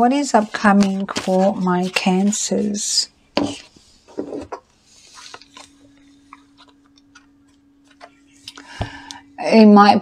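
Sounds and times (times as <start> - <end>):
cards rustling: 0.4 - 2.8, 5.0 - 8.2.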